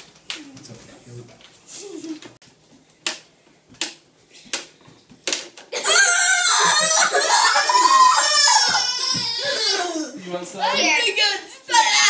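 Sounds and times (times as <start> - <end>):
girl shrieking: 5.8 - 11.0.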